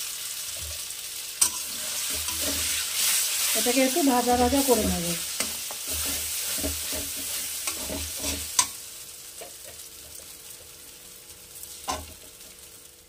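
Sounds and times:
paste sizzling in oil: 0.0s - 13.0s
metal spatula scraping pan: 1.4s - 8.8s.

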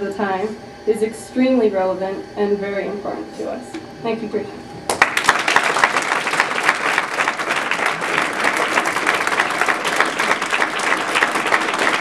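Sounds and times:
audience applause: 4.9s - 12.0s.

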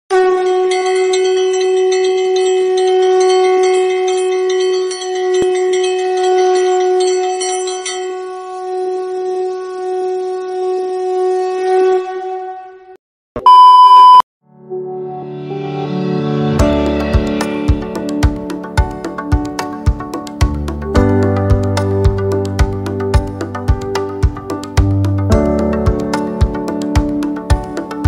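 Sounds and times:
conch shell blown: 0.1s - 13.0s
loud beep: 13.4s - 14.3s.

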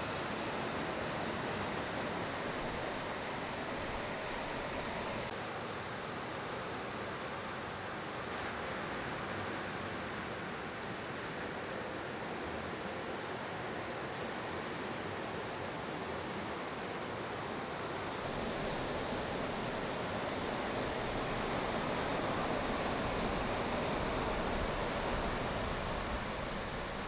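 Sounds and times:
ocean surf breaking: 18.0s - 27.0s.

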